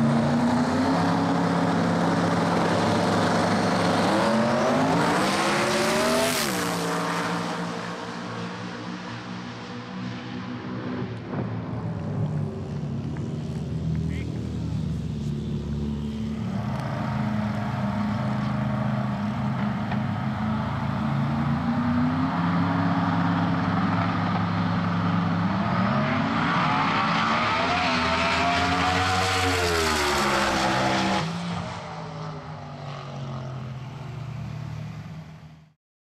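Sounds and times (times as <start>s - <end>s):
quieter engine drone: 7.3s - 27.0s.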